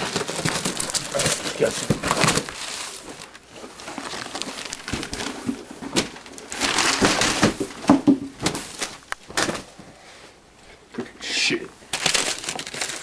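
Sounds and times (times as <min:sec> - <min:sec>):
wrapping paper tearing and crumpling: 0:00.0 - 0:07.8, 0:11.9 - 0:13.0.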